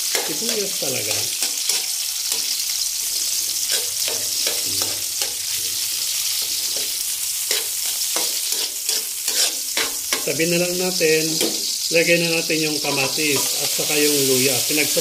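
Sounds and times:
garlic and onion sizzling in oil: 0.0 - 15.0
metal spoon scraping and clinking: 3.2 - 5.4, 6.4 - 10.3.

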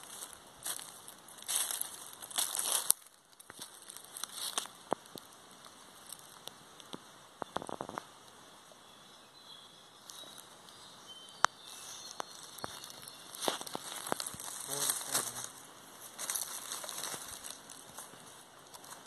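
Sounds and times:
footsteps crunching dry leaves: 0.0 - 4.8, 11.7 - 19.0.

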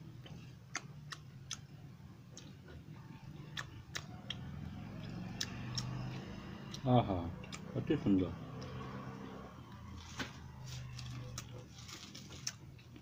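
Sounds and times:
person chewing food: 0.0 - 6.8, 7.4 - 7.7, 9.7 - 13.0.

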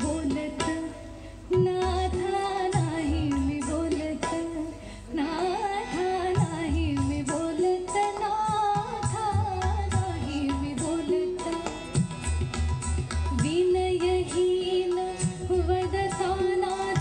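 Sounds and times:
woman singing: 0.0 - 12.1, 13.3 - 17.0
harmonium: 0.0 - 17.0
tabla: 0.0 - 17.0.

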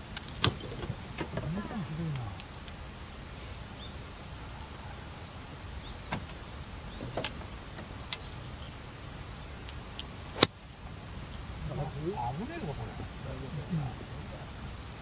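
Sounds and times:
low background rumble: 0.0 - 15.0
faint sharp clicks: 2.1 - 3.6, 6.1 - 8.4, 9.6 - 11.0.

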